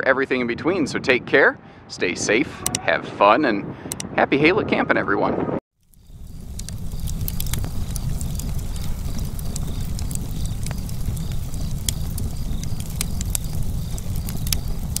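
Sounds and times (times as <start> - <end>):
log fire crackling and popping: 5.8 - 15.0.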